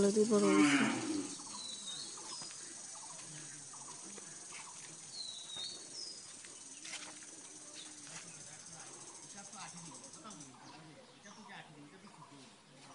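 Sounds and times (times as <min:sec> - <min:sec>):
faint high bird chirps: 0:01.1 - 0:08.1.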